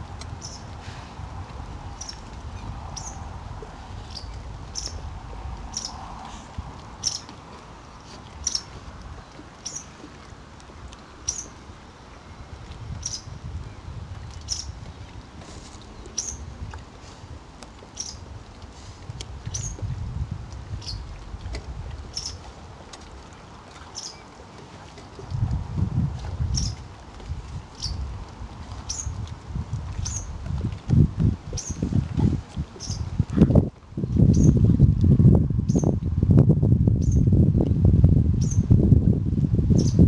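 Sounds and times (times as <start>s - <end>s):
low wind rumble: 0.0s - 40.0s
small bird chirping: 32.8s - 33.0s.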